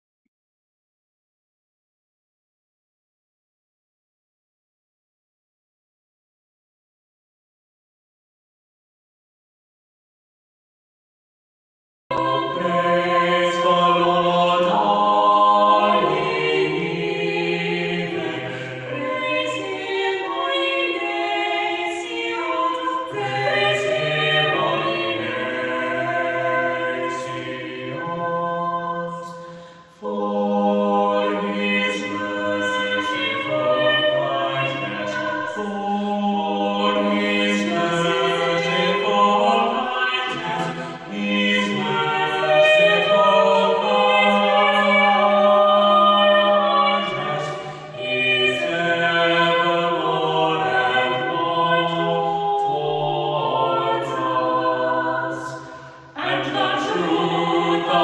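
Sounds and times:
vocal trio singing in harmony: 12.1s - 58.0s.

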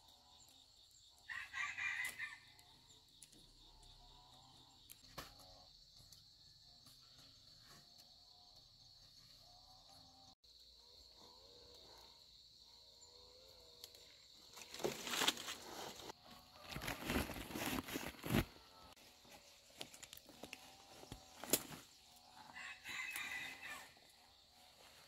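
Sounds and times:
branches and leaves rustling: 13.8s - 25.0s
high insect drone: 18.3s - 25.0s.

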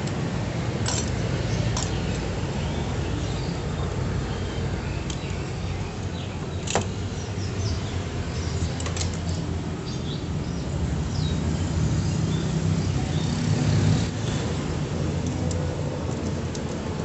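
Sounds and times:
small birds chirping: 1.2s - 14.5s.

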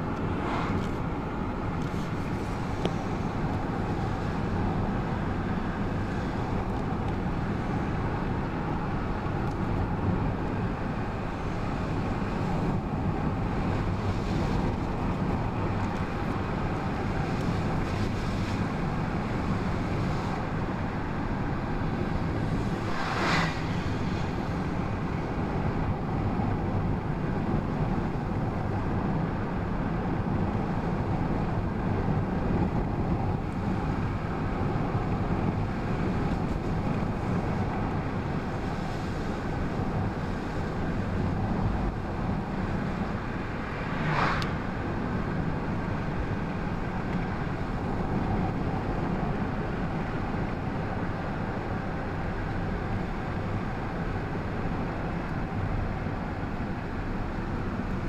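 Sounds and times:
passing bus whoosh: 0.0s - 4.5s, 17.5s - 27.0s, 35.5s - 49.2s
car cabin road and engine noise: 0.0s - 58.0s
tyres rumbling on asphalt: 0.0s - 58.0s.

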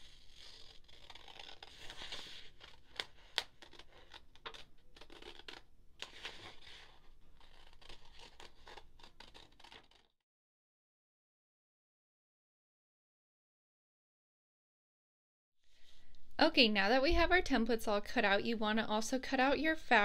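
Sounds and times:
scissors snipping paper: 0.0s - 10.1s.

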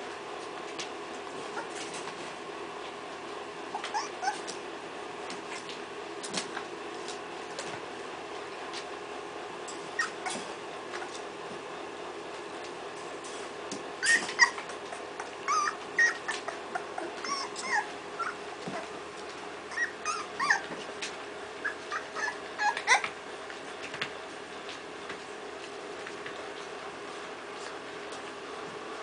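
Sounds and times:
puppies whimpering and yipping: 1.4s - 1.9s, 3.7s - 4.6s, 9.9s - 11.2s, 14.0s - 19.0s, 19.7s - 20.9s, 21.6s - 23.2s.

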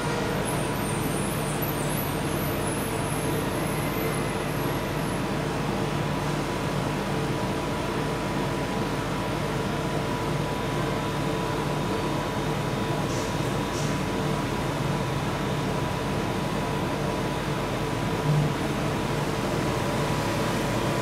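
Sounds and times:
mechanical hum: 0.0s - 21.0s.

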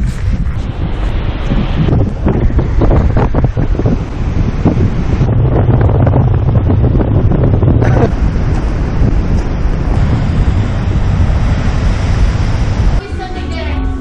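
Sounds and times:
surf breaking on rocks: 0.0s - 13.1s
wind buffeting microphone: 0.0s - 14.0s.

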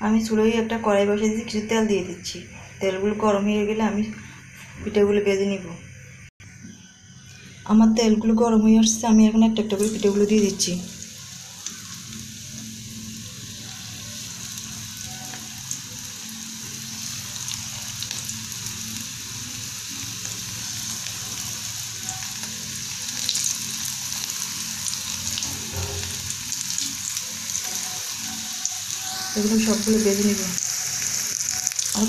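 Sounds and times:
hot oil sizzling and bubbling: 9.6s - 32.0s.

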